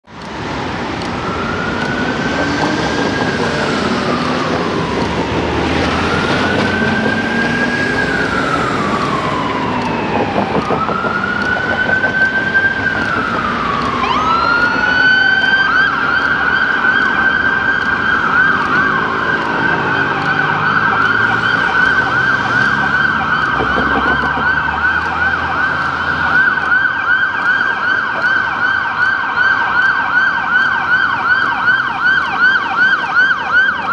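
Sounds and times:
city traffic rumble: 0.0s - 33.9s
ambulance siren wailing and yelping: 0.4s - 33.9s.

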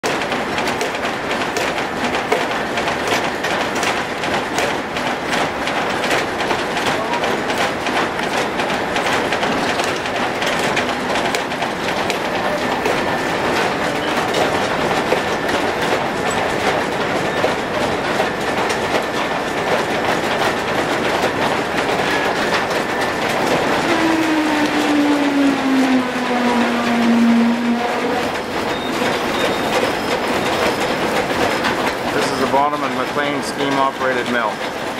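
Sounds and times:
sawmill machinery clattering: 0.0s - 34.9s
squeal sliding down in pitch: 23.9s - 30.2s.

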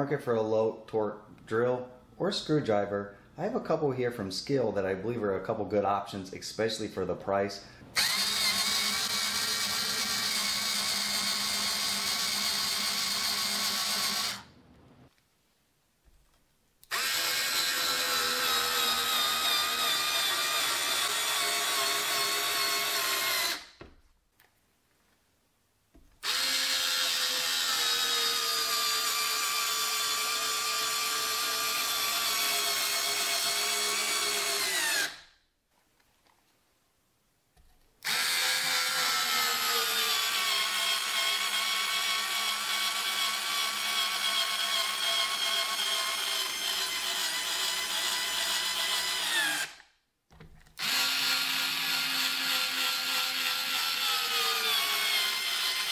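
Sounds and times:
cordless drill motor whining: 8.0s - 14.5s, 16.9s - 23.8s, 26.2s - 35.2s, 38.0s - 49.8s, 50.8s - 55.9s.

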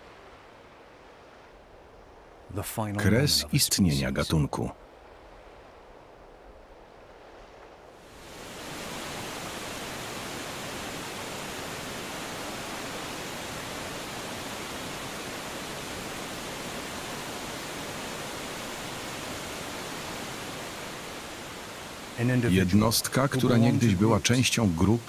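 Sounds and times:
waterfall rushing: 8.1s - 25.0s.

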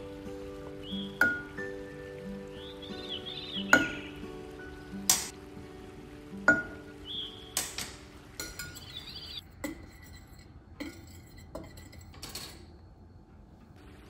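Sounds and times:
whisk tapping and scraping glass: 8.4s - 12.2s
metal spoon clinking on glass: 8.4s - 12.7s.

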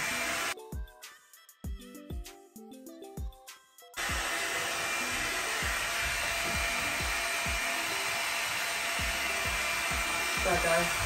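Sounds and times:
hot-air brush blowing hiss: 0.0s - 0.6s, 4.0s - 11.0s
background music with steady beat: 0.0s - 11.0s.

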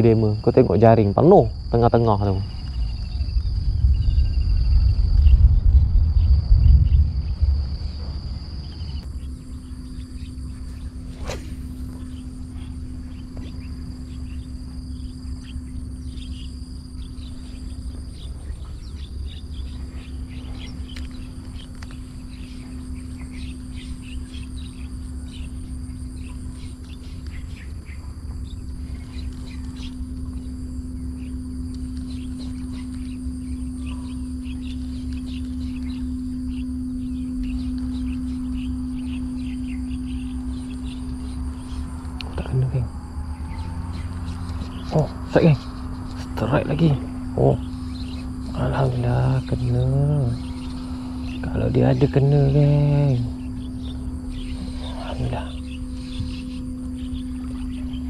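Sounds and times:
crickets trilling: 0.0s - 58.0s
insect chirps: 0.0s - 58.0s
steady low hum: 0.0s - 58.0s
wind rumbling on microphone: 1.3s - 15.1s.

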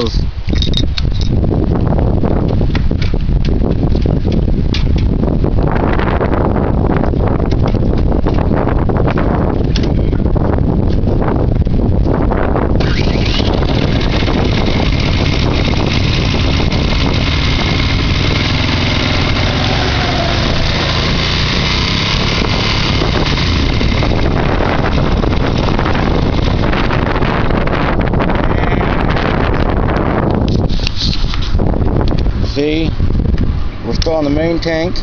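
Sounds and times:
rushing wind noise: 0.0s - 35.0s
motorcycle engine running: 10.9s - 30.4s.

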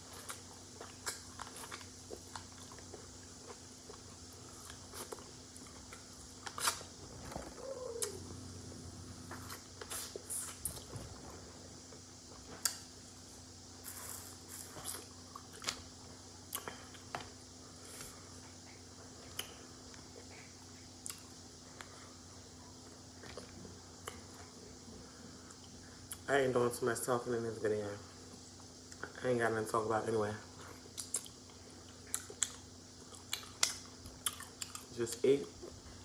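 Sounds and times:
wet smacks and chewing: 18.7s - 21.9s, 30.7s - 34.9s.

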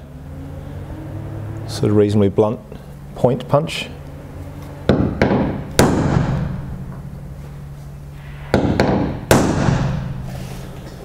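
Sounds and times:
hammer striking metal punch: 4.9s - 6.8s, 8.5s - 10.2s.

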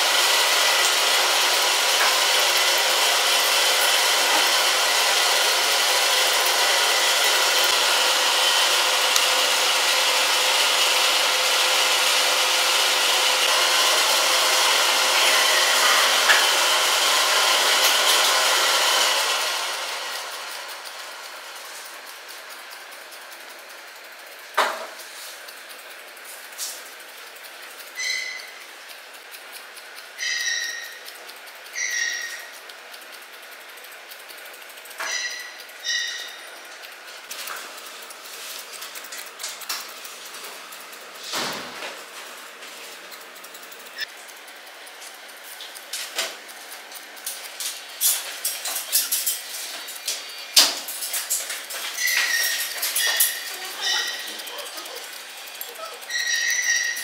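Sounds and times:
scissors snipping clicks: 0.6s - 1.2s, 9.1s - 9.4s, 20.5s - 57.0s
scissor blades scraping shut: 24.5s - 29.5s, 30.2s - 32.8s, 34.8s - 57.0s.

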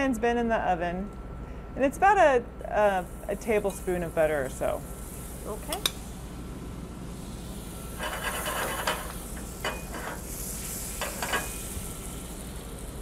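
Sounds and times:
butter sizzling in skillet: 7.1s - 13.0s.

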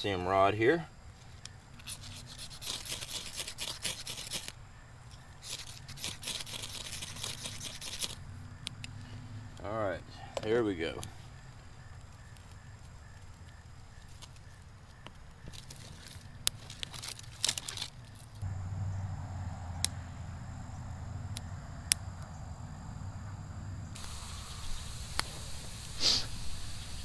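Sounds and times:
campfire crackling and popping: 11.0s - 18.6s, 19.8s - 22.4s, 24.0s - 27.0s
steady low rumble: 18.4s - 27.0s.

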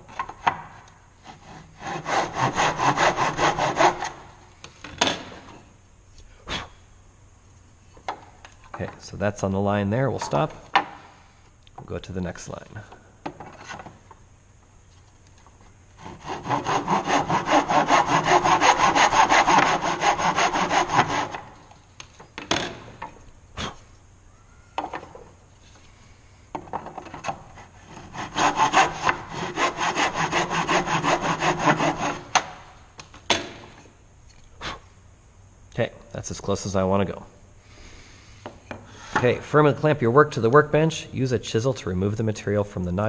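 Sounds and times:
hand saw cutting wood: 1.2s - 4.2s, 16.0s - 21.7s, 27.2s - 32.6s.

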